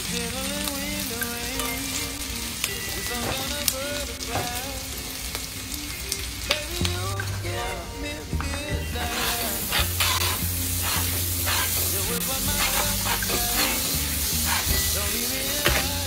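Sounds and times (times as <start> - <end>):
meat sizzling in a frying pan: 0.0 - 6.8, 9.0 - 16.0
background music with melody: 0.0 - 16.0
butter in a hot pan: 9.0 - 16.0.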